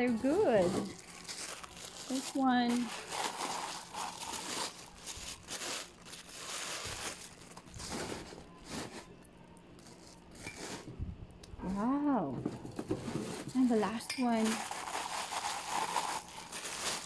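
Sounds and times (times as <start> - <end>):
packing wrap rustling and crinkling: 0.0 - 9.1, 14.4 - 17.0.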